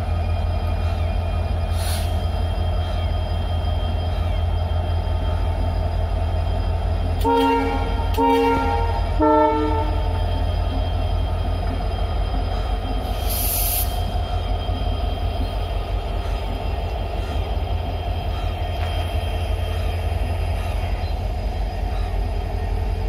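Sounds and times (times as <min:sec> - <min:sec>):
thin steady squeal: 0:00.0 - 0:07.2, 0:09.0 - 0:23.0
train wheels rumbling on rail: 0:00.0 - 0:23.0.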